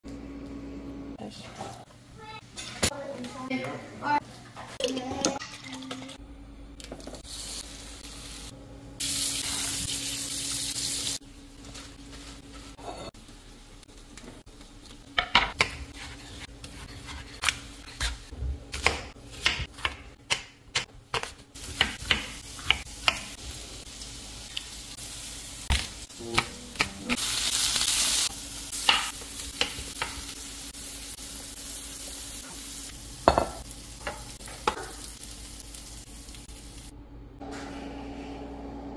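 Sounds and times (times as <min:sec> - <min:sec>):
knife chopping on wooden board: 0:15.2 - 0:23.3
chicken sizzling on grill pan: 0:27.2 - 0:33.4.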